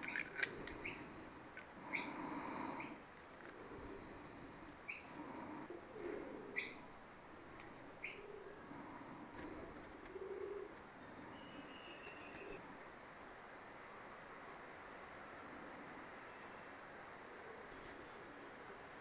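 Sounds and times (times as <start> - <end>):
low bird calls: 0.0 - 12.8.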